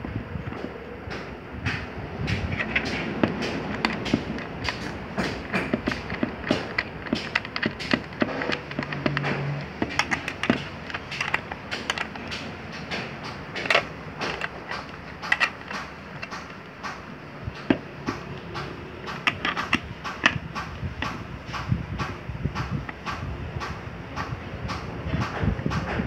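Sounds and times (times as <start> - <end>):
plastic parts clicking and knocking: 0.0 - 26.0.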